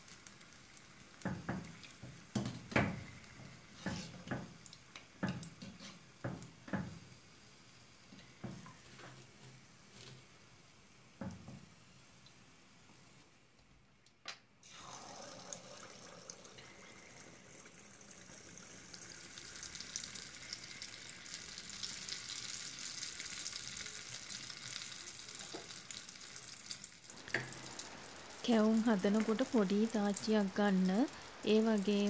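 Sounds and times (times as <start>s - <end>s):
batter sizzling in hot oil: 0.0s - 13.5s, 14.6s - 32.0s.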